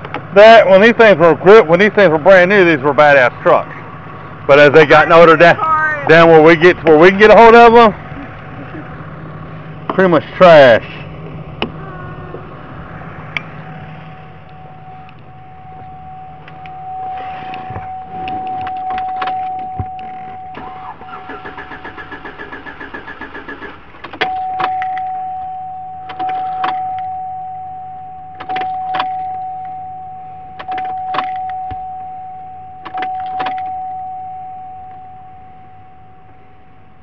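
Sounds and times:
steady high electronic tone: 13.6s - 21.8s.

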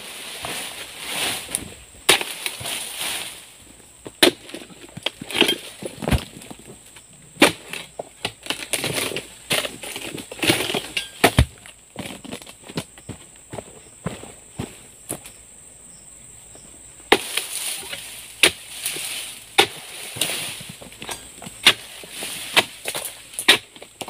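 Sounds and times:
blade chopping palm fronds: 0.0s - 3.5s, 7.4s - 12.3s, 17.1s - 24.0s
fronds rustling: 0.0s - 10.6s, 17.1s - 24.0s.

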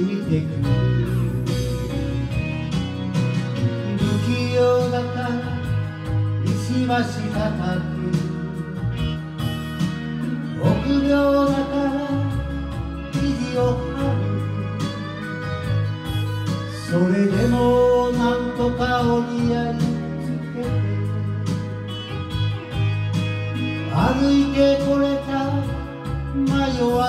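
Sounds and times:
backing track with guitar and bass: 0.0s - 27.0s
person singing slow melody: 0.0s - 27.0s.

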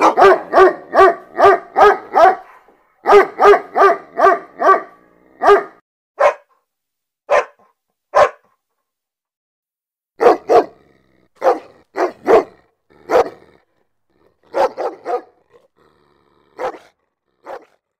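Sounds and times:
dog barking: 0.0s - 6.6s, 7.3s - 8.6s, 10.2s - 10.8s, 11.4s - 13.5s, 14.4s - 15.7s, 16.6s - 17.9s.

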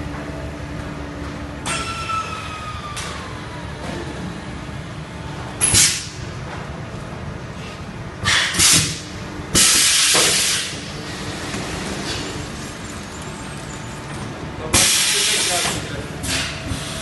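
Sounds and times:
machine running noise: 0.0s - 17.0s
sharp air hisses: 8.2s - 9.0s, 9.6s - 10.7s, 14.8s - 17.0s.

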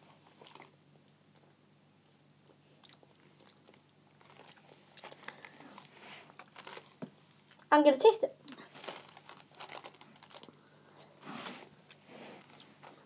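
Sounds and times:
faint small clicks and rustles: 2.8s - 7.7s, 8.5s - 13.0s.

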